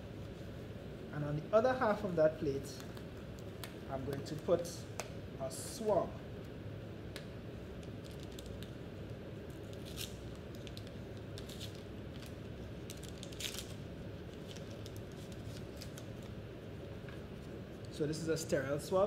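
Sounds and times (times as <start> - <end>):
low room hum: 0.0 - 19.0
paper pouch crinkling and tearing: 9.5 - 16.3.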